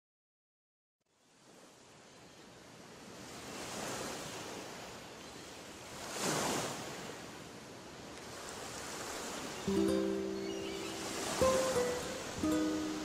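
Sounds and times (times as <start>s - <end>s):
sea waves washing onto shore: 2.8s - 13.0s.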